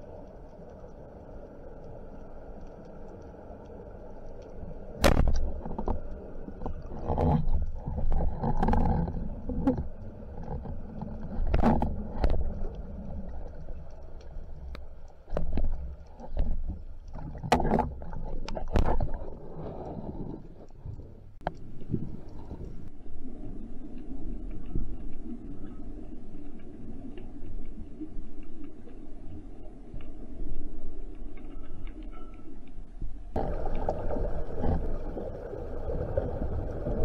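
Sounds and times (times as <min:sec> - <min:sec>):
speargun firing crack underwater: 0:05.0 - 0:05.5
underwater knocks and scrapes: 0:05.0 - 0:22.9, 0:29.9 - 0:37.0
water rushing: 0:33.4 - 0:37.0.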